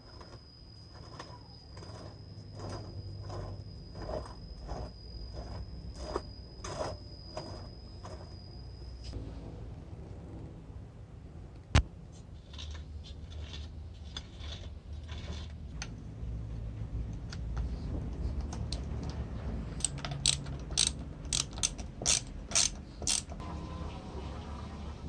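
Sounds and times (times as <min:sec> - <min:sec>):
ratcheting clicks: 0:19.8 - 0:23.4.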